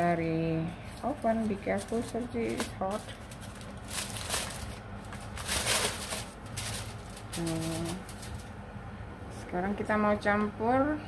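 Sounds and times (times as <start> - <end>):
aluminium foil crinkling: 0.8 - 8.6.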